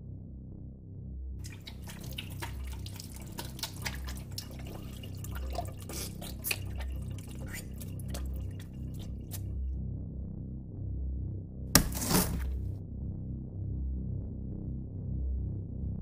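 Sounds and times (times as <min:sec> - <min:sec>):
low pulsing bass: 0:00.0 - 0:01.4, 0:09.0 - 0:16.0
liquid dripping and splattering: 0:01.4 - 0:09.6.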